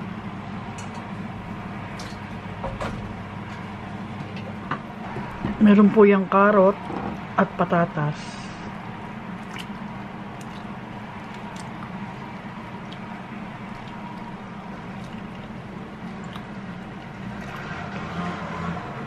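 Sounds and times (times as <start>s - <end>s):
broth simmering and bubbling: 6.7s - 7.4s, 8.1s - 19.0s.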